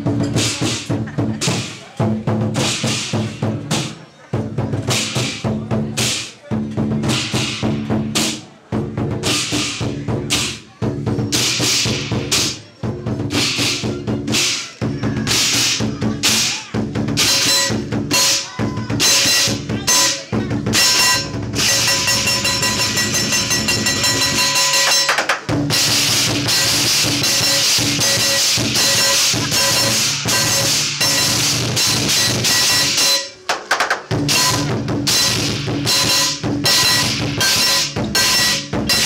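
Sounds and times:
drums and cymbals beating: 0.0s - 39.0s
ringing metallic tones: 17.2s - 33.5s, 34.2s - 39.0s.

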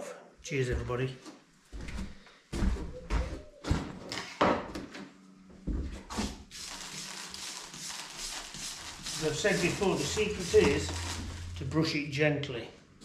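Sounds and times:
hand brush scratching on mortar: 6.5s - 11.7s.

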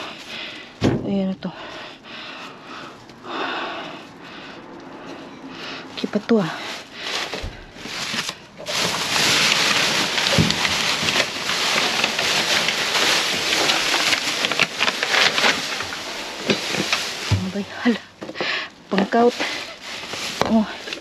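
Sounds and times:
rummaging through a dumpster: 5.1s - 21.0s.

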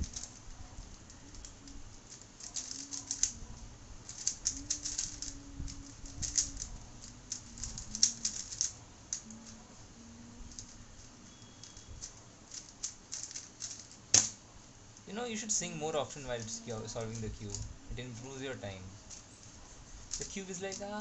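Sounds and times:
plastic puzzle cube clicking: 0.0s - 9.6s, 10.5s - 14.4s, 20.1s - 21.0s
soft hummed tune: 0.0s - 13.5s, 14.5s - 21.0s.

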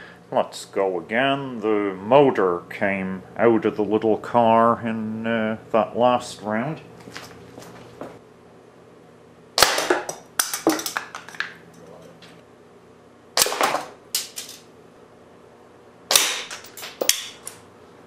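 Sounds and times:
pellets clattering on plastic targets: 9.6s - 11.6s, 13.4s - 14.7s, 16.1s - 17.5s
pieces knocking on wooden board: 9.8s - 11.6s
air rifle shots: 13.4s - 13.9s, 16.1s - 16.6s.

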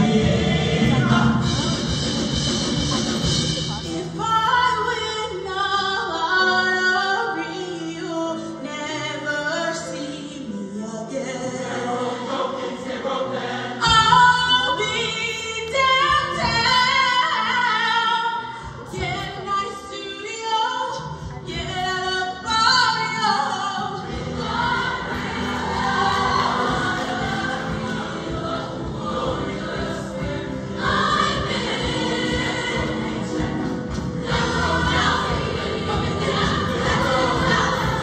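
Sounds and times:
choir singing: 0.0s - 3.4s, 8.9s - 19.0s, 22.3s - 38.0s
live band with bass and beats: 0.0s - 4.2s.

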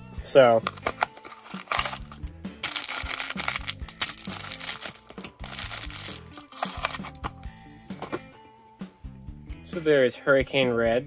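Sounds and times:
background music with bass: 0.0s - 11.0s
plastic bags crinkling: 0.7s - 7.3s.

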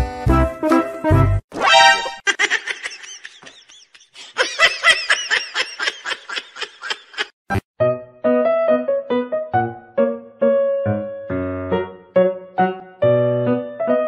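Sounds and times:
piano music with steady beat: 0.0s - 1.4s, 7.8s - 14.0s
high-pitched giggling laughter: 2.2s - 7.4s.

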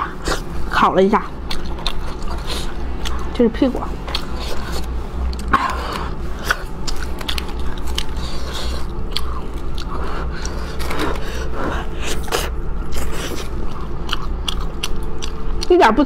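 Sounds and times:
close chewing: 0.0s - 16.0s
low hum: 0.0s - 16.0s.

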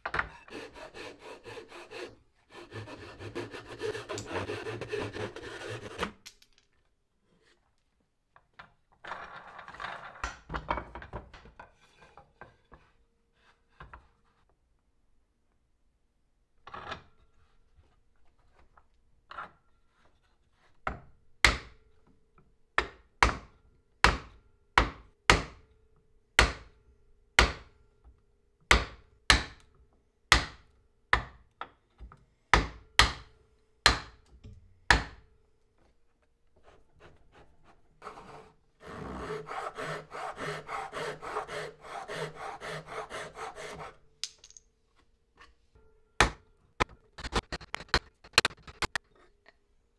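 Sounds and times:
rasping strokes on wood: 0.3s - 6.1s, 36.6s - 44.0s.

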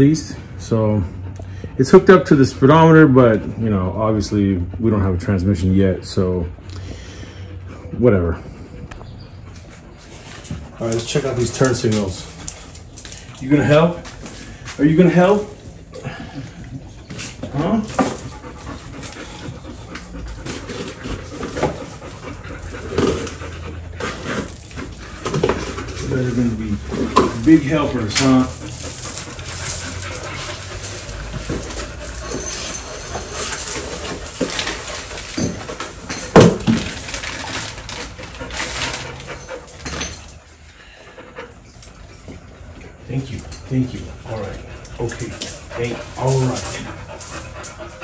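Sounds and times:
dog panting: 0.3s - 48.0s
cardboard and plastic rustling: 20.4s - 40.3s.

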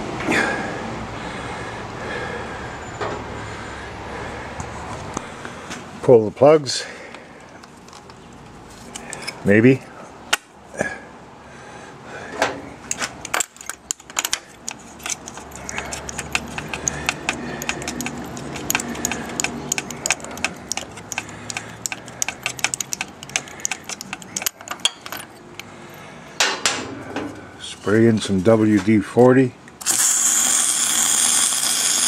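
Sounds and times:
socket wrench ratcheting: 12.9s - 25.7s, 29.7s - 32.0s
metal tool clinks: 13.3s - 25.7s.

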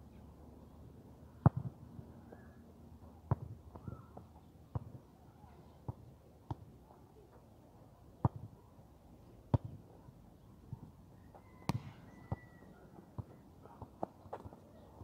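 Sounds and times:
football kicked and bouncing: 1.4s - 1.7s, 3.3s - 5.0s, 5.9s - 6.6s, 8.2s - 8.5s, 9.5s - 9.8s, 11.7s - 12.4s, 13.2s - 14.6s.

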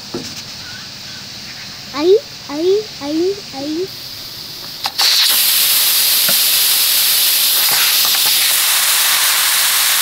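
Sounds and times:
pressure cooker steam hissing: 3.6s - 10.0s.

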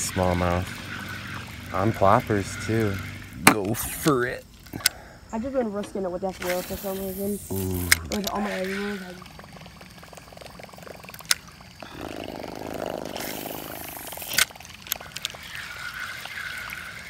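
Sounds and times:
fishing reel whirring: 0.0s - 4.1s, 6.4s - 17.0s
reel clicks: 6.4s - 9.1s, 9.7s - 11.6s, 13.2s - 16.5s.

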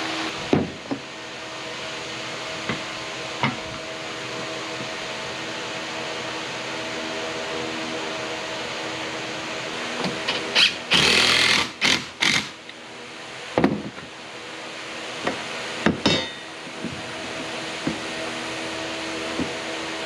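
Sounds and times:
steady hum: 0.0s - 20.0s
cordless drill driving screws: 10.5s - 12.6s
knocks of wood and tools: 13.6s - 14.1s, 15.2s - 17.0s.

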